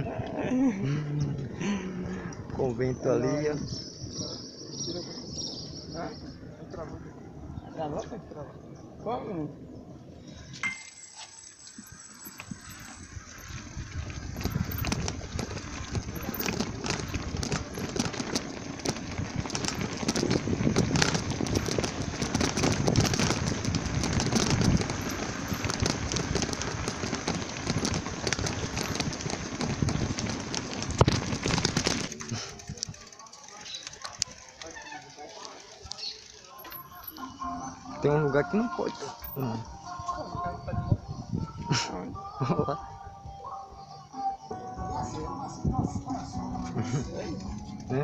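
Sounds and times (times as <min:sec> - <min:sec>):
bicycle rattling over cobblestones: 0:10.3 - 0:37.8.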